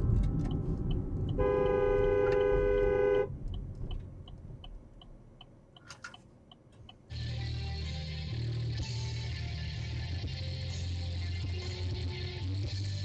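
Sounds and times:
turn signal ticking: 0:00.0 - 0:07.2
car road rumble: 0:00.0 - 0:07.3
two-note car horn blast: 0:01.3 - 0:03.4.

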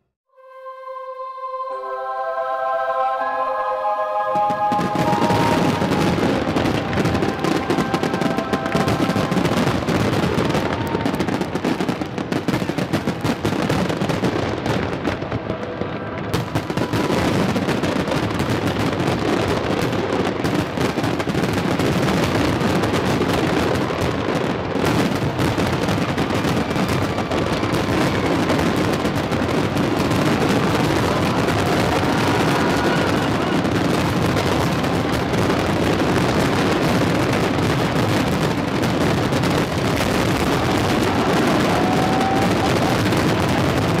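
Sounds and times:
faint music: 0:00.3 - 0:11.6
fireworks banging and crackling: 0:04.4 - 0:44.0.

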